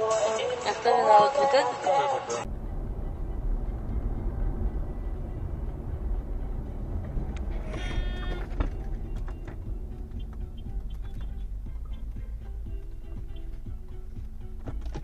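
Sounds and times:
car road and engine rumble: 2.4 - 15.0
brief shrill tone: 7.5 - 8.6.

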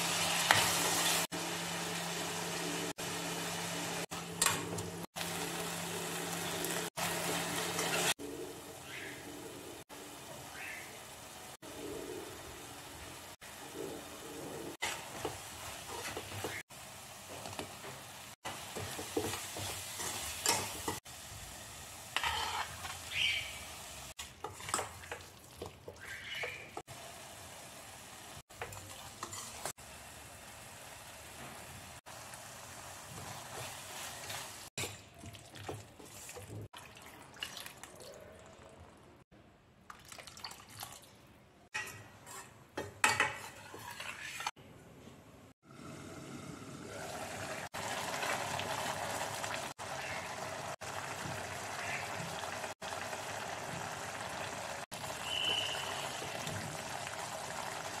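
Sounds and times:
food sizzling in pan: 0.0 - 35.0, 45.6 - 58.0
curry simmering: 45.7 - 58.0
water splashing into pan: 50.8 - 58.0.

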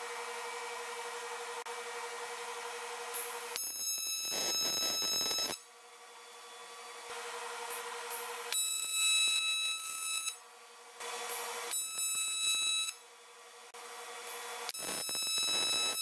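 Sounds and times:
welding arc buzzing: 3.1 - 5.7, 7.2 - 10.4, 11.0 - 13.0, 13.8 - 16.0.

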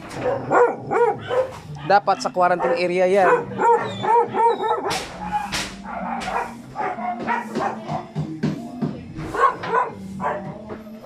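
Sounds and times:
dogs barking and yipping: 0.0 - 8.2, 9.2 - 11.0
puppy howling: 0.2 - 8.0.

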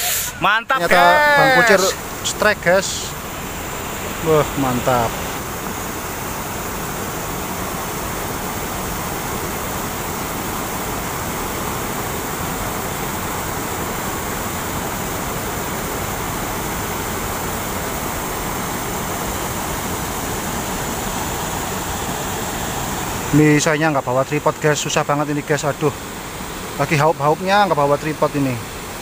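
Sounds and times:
river rushing over rocks: 0.8 - 29.0.

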